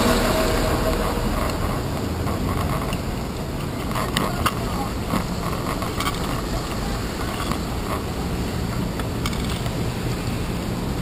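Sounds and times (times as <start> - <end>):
traffic and road noise rumble: 0.0 - 11.0
bike mount rattling: 1.4 - 8.1.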